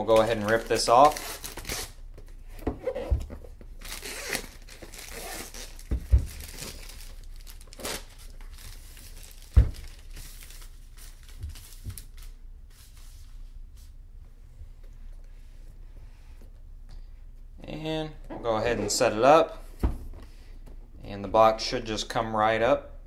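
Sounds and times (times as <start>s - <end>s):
plastic wrap ripping and crinkling: 0.0s - 2.4s, 3.8s - 12.4s.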